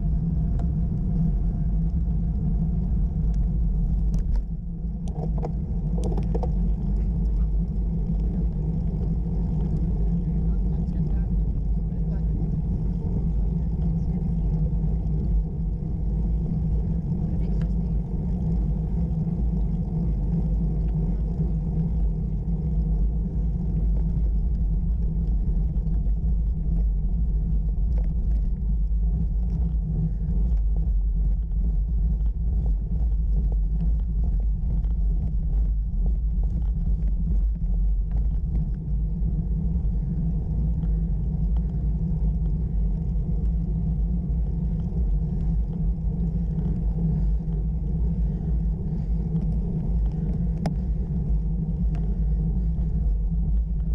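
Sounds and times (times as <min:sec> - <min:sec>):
road vibration rumble: 0:00.0 - 0:53.9
wind noise: 0:00.0 - 0:53.9
faint ticks: 0:00.4 - 0:10.0, 0:13.0 - 0:53.9.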